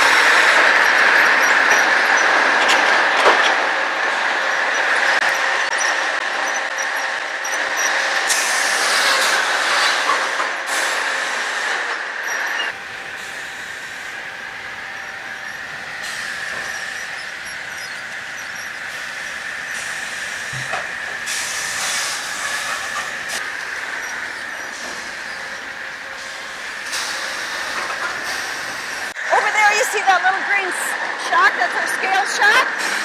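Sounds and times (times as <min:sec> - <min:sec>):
sawmill machinery whine: 0:00.0 - 0:29.4
mechanical hiss: 0:12.8 - 0:29.2.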